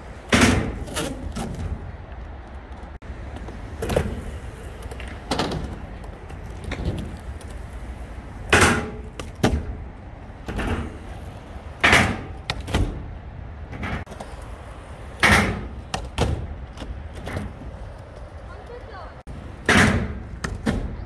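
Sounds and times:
rolling skateboard wheels: 0:00.0 - 0:21.0
skateboard clacking on ramp: 0:13.7 - 0:21.0.

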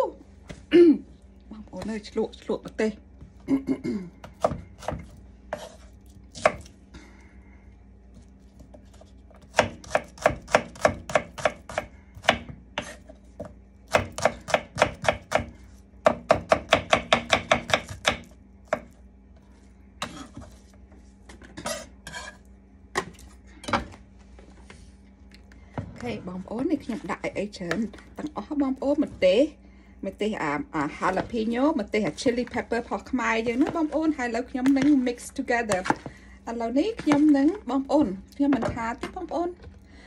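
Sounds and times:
knife chopping on wooden board: 0:06.4 - 0:06.7, 0:09.4 - 0:18.9.

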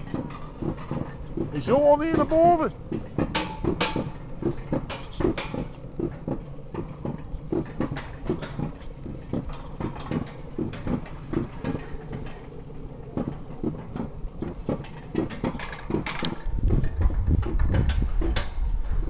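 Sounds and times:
sled wheels knocking over rail joints: 0:00.0 - 0:19.0
wind on microphone: 0:16.4 - 0:19.0.

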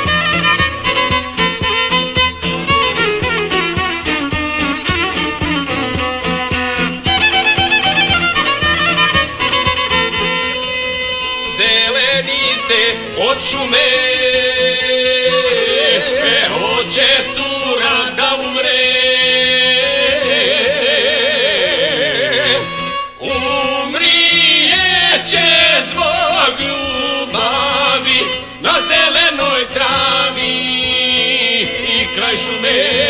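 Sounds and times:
plucked long-necked lute: 0:00.0 - 0:33.0
violin: 0:00.0 - 0:33.0
men singing folk song: 0:11.5 - 0:33.0.

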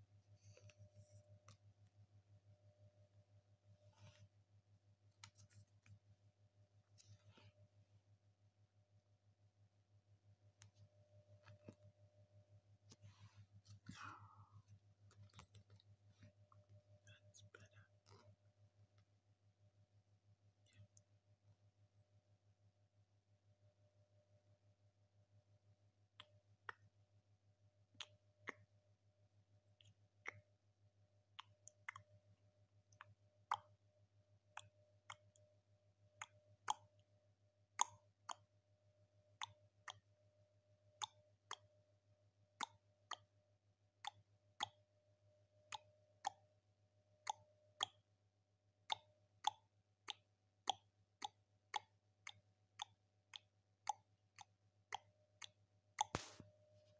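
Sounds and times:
low steady hum: 0:00.0 - 0:56.9
faint sharp clicks: 0:48.9 - 0:56.6.

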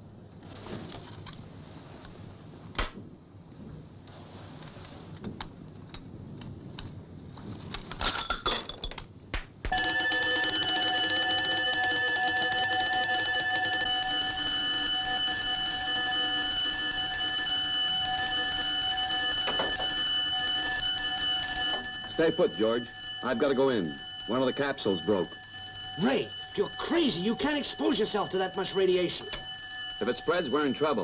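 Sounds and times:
electric alarm bell ringing: 0:09.7 - 0:31.0.

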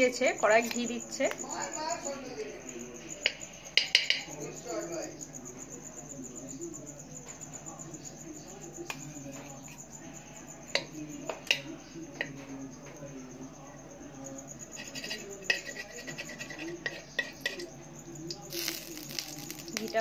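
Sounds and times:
metal spoon scraping a wok: 0:14.7 - 0:17.7.

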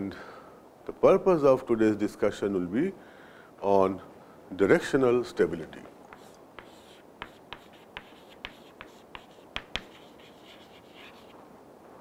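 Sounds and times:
chalk tapping on chalkboard: 0:06.1 - 0:11.3
chalk scratching on chalkboard: 0:06.1 - 0:11.4.

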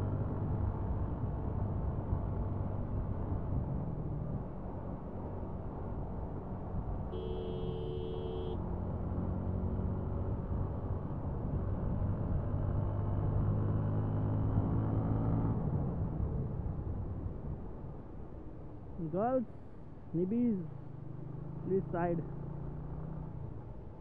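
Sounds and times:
road and wind noise: 0:00.0 - 0:24.0
horn sounding: 0:07.1 - 0:08.6.

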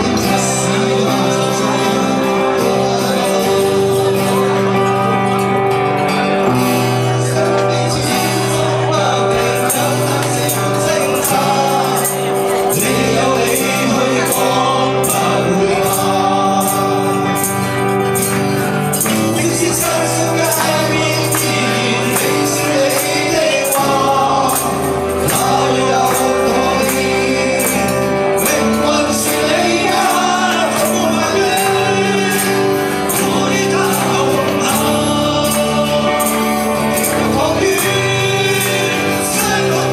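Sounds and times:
live band with guitars: 0:00.0 - 0:39.9
men singing pop-rock song: 0:00.0 - 0:39.9.

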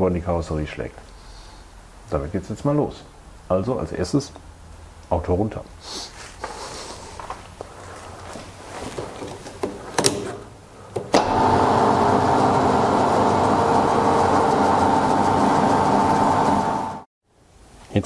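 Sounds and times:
car lift motor humming: 0:08.9 - 0:17.1.

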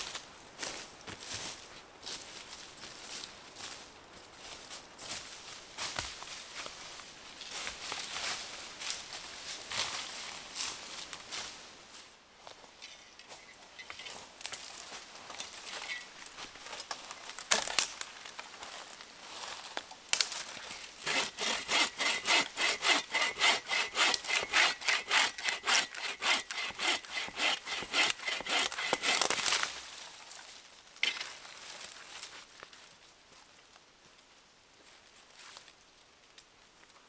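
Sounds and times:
hand saw cutting wood: 0:21.0 - 0:29.5.

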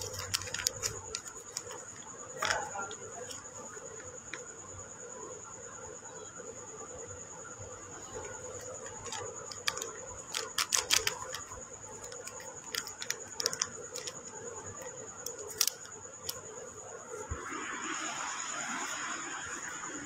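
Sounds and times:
packet crackling when handled: 0:00.0 - 0:03.5, 0:08.6 - 0:16.4
steady high whine: 0:11.3 - 0:20.0.

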